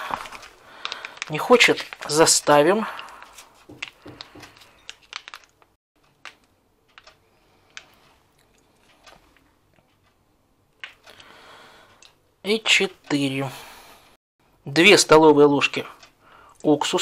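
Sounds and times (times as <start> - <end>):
plastic pouch crinkling: 0.0 - 7.1.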